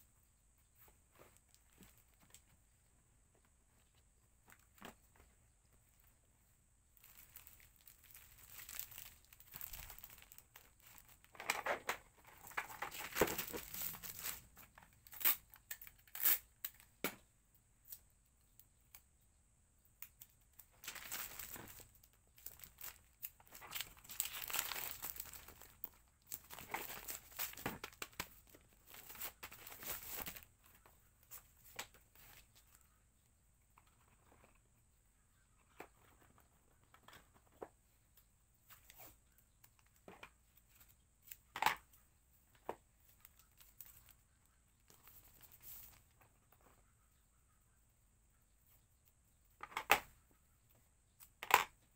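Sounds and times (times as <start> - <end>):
packaging crinkling and tearing: 7.0 - 11.7, 12.3 - 16.9, 20.8 - 30.5.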